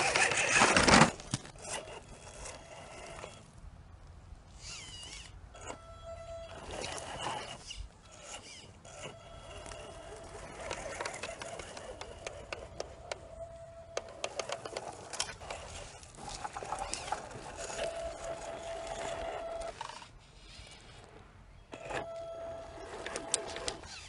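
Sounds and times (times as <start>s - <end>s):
toy car electric motor whining: 0.0s - 3.5s, 4.5s - 24.0s
dry leaves and twigs crackling: 6.5s - 21.2s.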